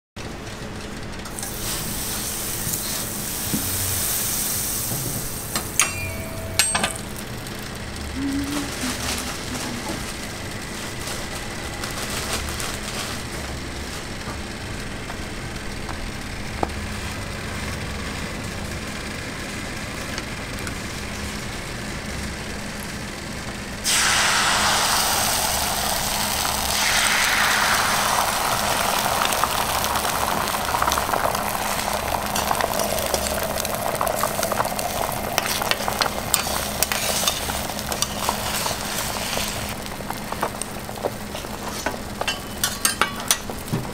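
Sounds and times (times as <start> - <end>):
egg frying: 0.3 - 8.1, 23.8 - 43.9
oil sizzling on griddle: 1.2 - 7.7, 23.8 - 43.9.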